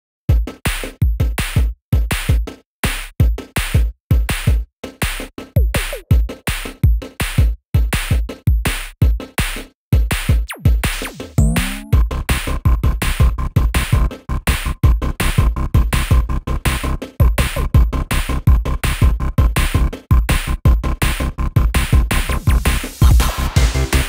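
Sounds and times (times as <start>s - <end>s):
electronic music with drum-machine beat: 3.2s - 12.1s, 12.7s - 24.0s.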